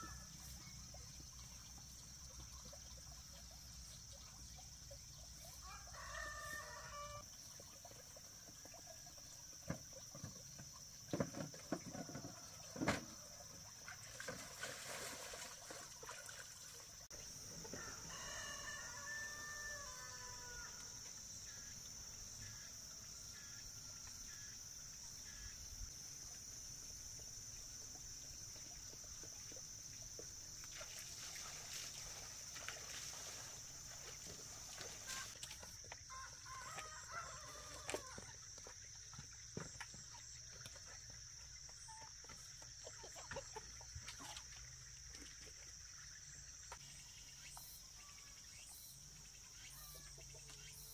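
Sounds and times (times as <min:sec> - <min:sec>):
rooster crowing: 0:05.6 - 0:07.2, 0:17.8 - 0:20.8, 0:36.1 - 0:38.3.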